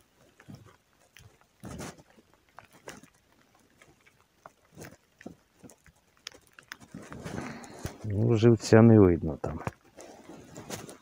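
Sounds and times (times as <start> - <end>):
hands clicking and rustling: 0.0 - 8.5.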